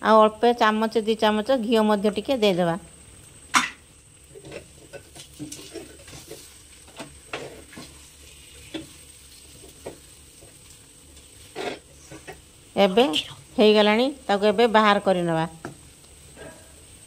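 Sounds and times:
spatula scraping a pan: 4.3 - 12.5.

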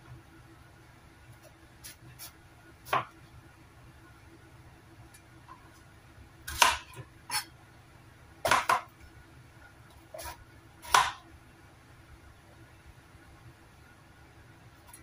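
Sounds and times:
knife chopping onto cutting board: 6.5 - 7.4, 8.4 - 8.9, 10.2 - 11.2.

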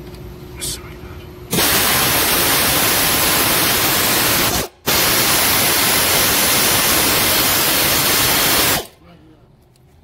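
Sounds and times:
pneumatic air ratchet hissing: 1.5 - 8.9.

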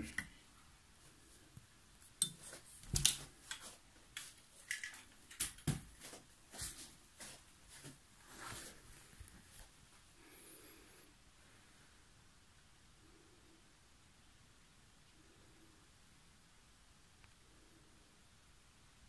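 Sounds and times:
light clicks and knocks of handling: 2.1 - 5.9.

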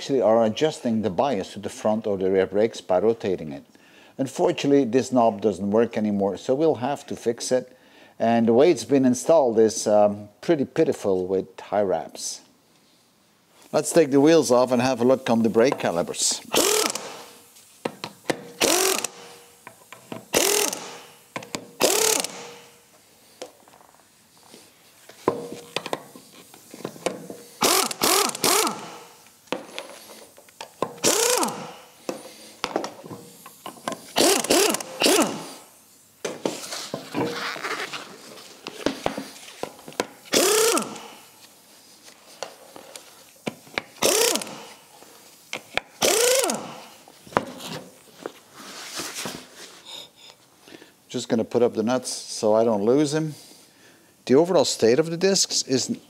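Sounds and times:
pneumatic impact wrench bursts: 16.2 - 17.5, 18.1 - 22.9, 27.1 - 36.0, 40.2 - 41.4, 43.9 - 44.9, 45.6 - 47.1.

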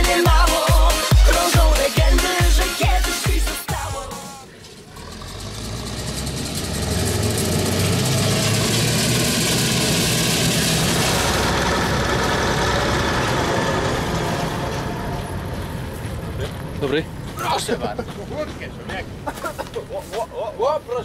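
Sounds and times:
combine harvester diesel hum: 4.4 - 17.4.

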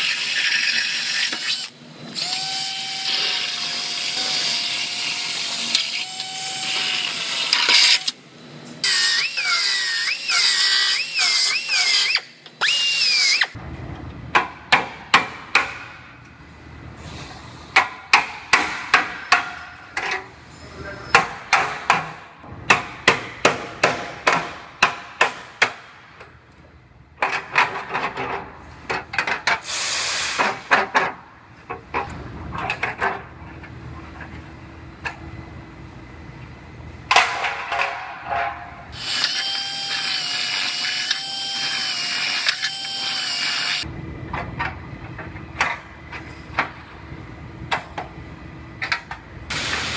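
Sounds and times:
drill boring into sheet steel: 8.8 - 13.6, 39.0 - 43.8
hammer strikes on metal: 14.3 - 16.0, 17.7 - 19.8, 21.1 - 26.0.

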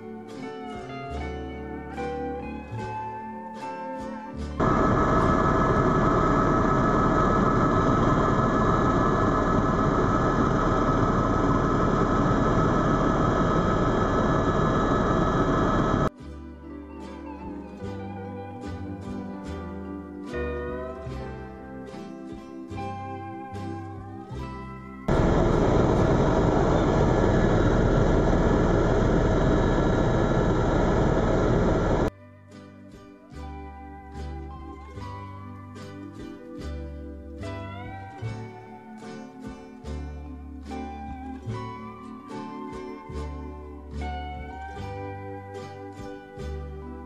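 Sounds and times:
helicopter engine and rotor drone: 4.6 - 16.1, 25.1 - 32.1
high whine: 4.6 - 16.1, 25.1 - 32.1.

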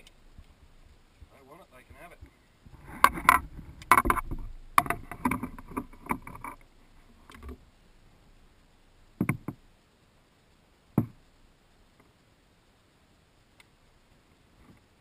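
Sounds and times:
rattle of light clicks: 2.9 - 7.7
knocks on canoe hull: 9.2 - 9.6, 11.0 - 11.2.

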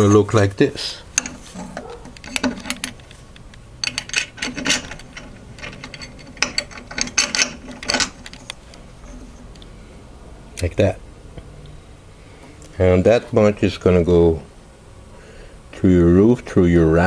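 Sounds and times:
metal hardware clinking: 1.1 - 9.6.

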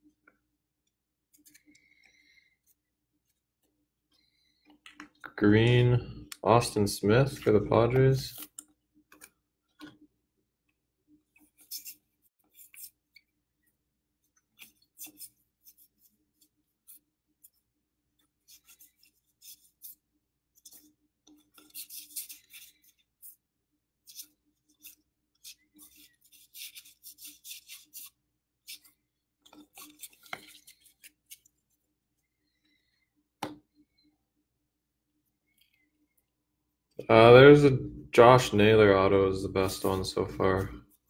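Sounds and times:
trading cards sliding swishes: 24.1 - 31.6.

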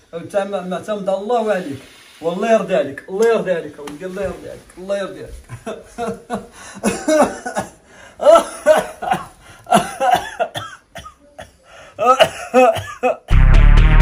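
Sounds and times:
person coughing: 5.5 - 13.3.

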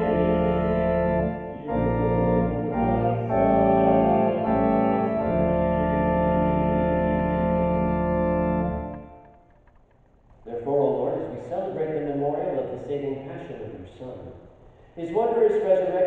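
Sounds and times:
organ chords: 0.0 - 12.8.

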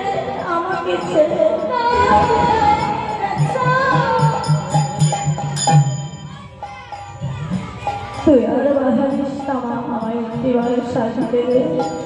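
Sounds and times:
woman singing devotional melody: 0.0 - 5.2, 8.2 - 12.0
metallic cymbal clashes: 0.0 - 12.0.

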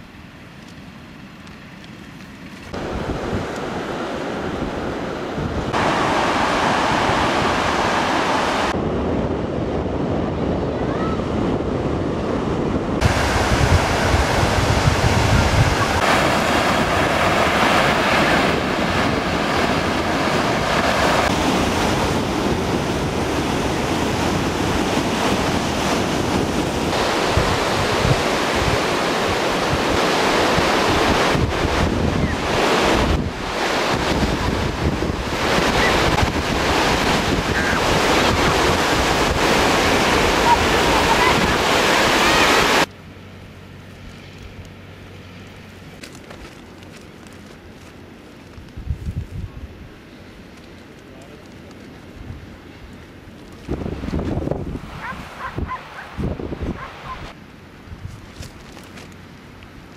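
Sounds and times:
surf washing onto beach: 2.6 - 42.9, 49.7 - 57.4
wind buffeting microphone: 2.7 - 42.9, 48.6 - 50.0, 53.6 - 58.5.

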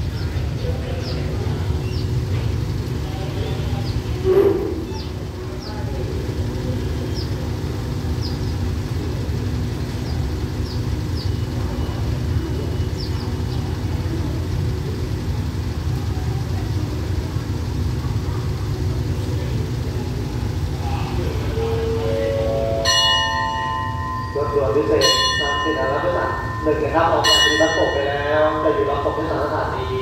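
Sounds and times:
diesel train engines idling: 0.0 - 30.0
bird chirps: 4.8 - 5.8.

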